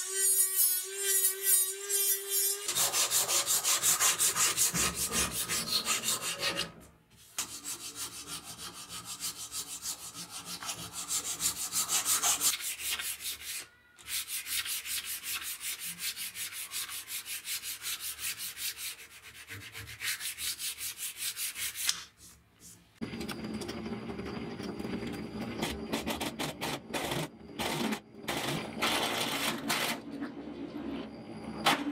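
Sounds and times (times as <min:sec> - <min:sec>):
sandpaper rubbing on wood: 0:00.9 - 0:06.7, 0:07.3 - 0:22.3.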